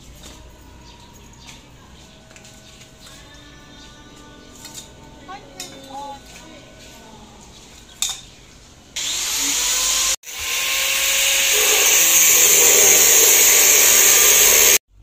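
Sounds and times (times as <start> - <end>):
angle grinder cutting metal: 9.0 - 14.8.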